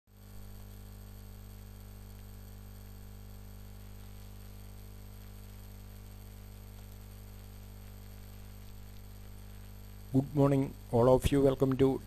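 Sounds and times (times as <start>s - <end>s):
mains hum: 0.1s - 12.0s
steady hiss: 0.1s - 12.0s.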